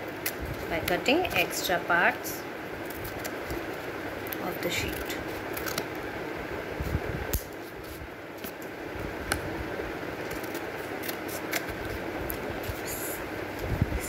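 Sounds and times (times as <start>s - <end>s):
scissors snipping paper: 4.3s - 5.9s, 10.2s - 12.9s.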